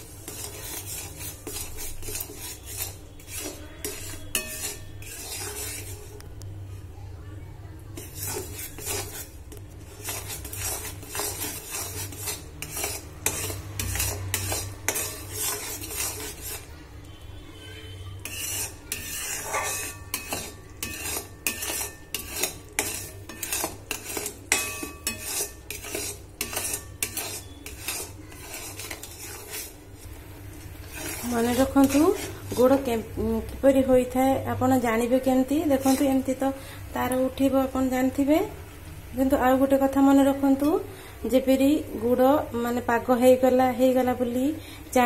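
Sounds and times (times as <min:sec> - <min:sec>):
metal spatula scraping pan: 0:00.0 - 0:06.2, 0:08.0 - 0:34.2, 0:35.0 - 0:38.3.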